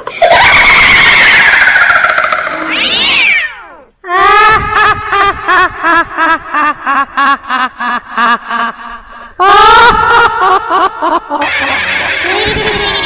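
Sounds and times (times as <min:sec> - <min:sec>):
person cackling laugh: 0:00.0 - 0:02.6, 0:04.1 - 0:13.0
music: 0:11.5 - 0:13.0.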